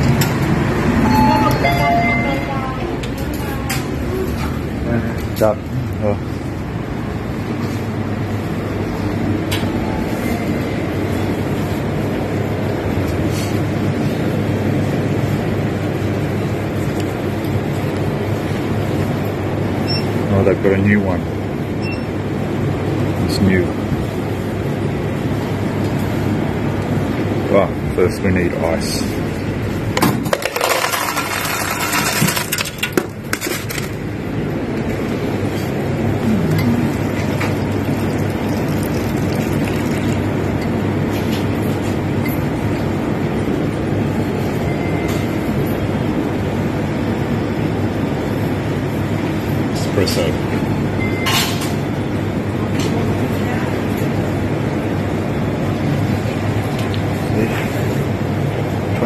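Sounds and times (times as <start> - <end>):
store interior hum and rumble: 0.0 - 59.0
ice cubes clattering into a paper cup: 30.3 - 34.0.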